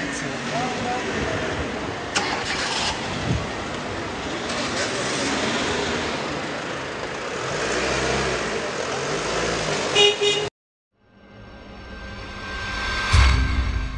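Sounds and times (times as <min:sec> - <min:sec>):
car engine pulling away: 0:00.0 - 0:09.9
street noise: 0:00.0 - 0:13.9.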